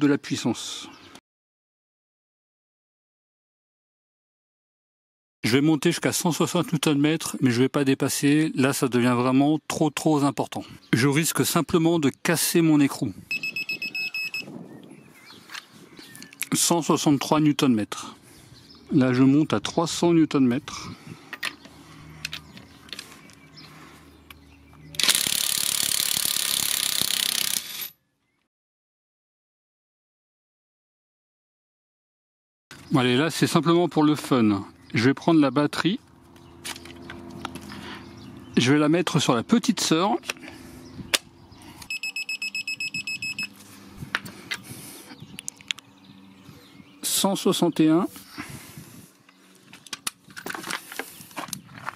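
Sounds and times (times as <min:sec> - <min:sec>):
short high beeps: 0:13.3 - 0:14.5, 0:41.9 - 0:43.6
impact wrench rattling: 0:25.0 - 0:27.9.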